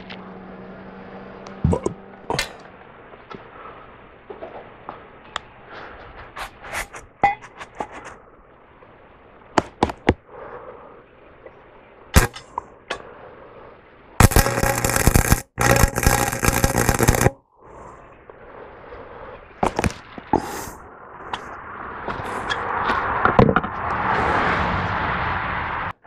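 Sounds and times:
low hum: 0.0s - 24.1s
welding arc crackling: 12.2s - 12.4s, 14.2s - 17.4s, 19.6s - 20.8s.

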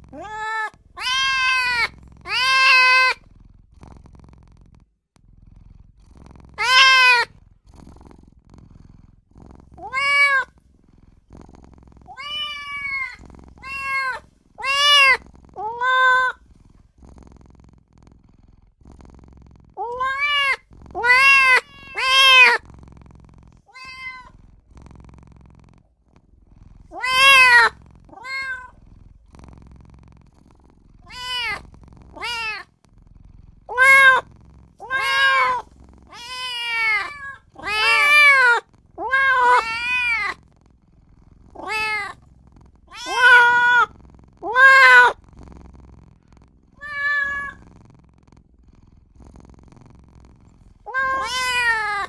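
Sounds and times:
kitten meowing: 0.2s - 3.2s, 6.6s - 7.3s, 9.8s - 10.5s, 12.1s - 16.4s, 19.8s - 22.6s, 23.7s - 24.3s, 26.9s - 28.7s, 31.0s - 31.6s, 32.2s - 32.6s, 33.7s - 40.4s, 41.6s - 42.2s, 42.9s - 45.2s, 46.8s - 47.6s, 50.9s - 52.0s.

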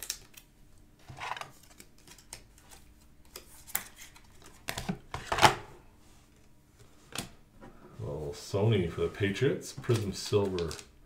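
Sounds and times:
cards clicking and rustling: 0.0s - 0.5s, 1.1s - 5.6s, 9.8s - 11.0s.

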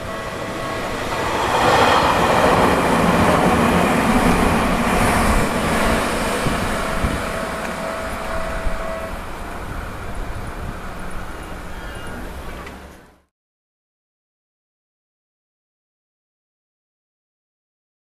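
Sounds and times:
electric train passing: 0.0s - 13.3s.

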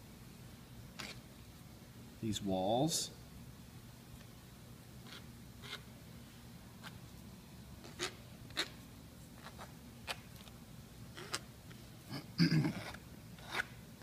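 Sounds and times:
tool scratching clay: 1.0s - 1.2s, 5.0s - 5.9s, 7.8s - 8.8s, 9.4s - 10.2s, 11.1s - 11.5s, 12.7s - 13.8s.

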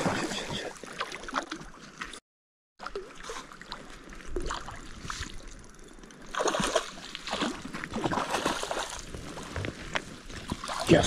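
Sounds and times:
fish splashing in water: 6.3s - 9.1s.

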